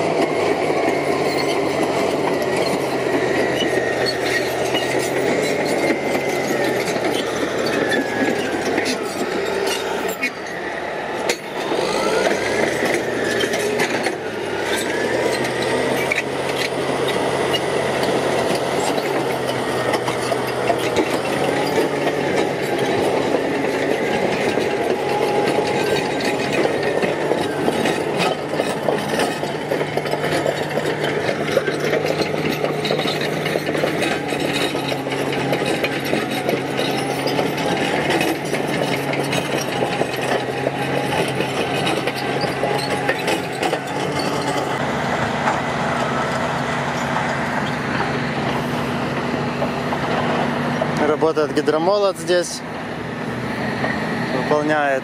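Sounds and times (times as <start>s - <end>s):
bulldozer diesel engine: 0.0s - 55.0s
metal clanks: 11.2s - 45.6s.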